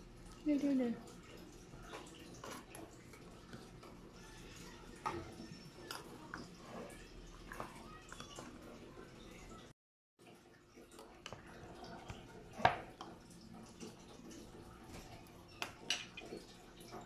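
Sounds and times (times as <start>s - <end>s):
soft wet food sounds: 0.0s - 17.0s.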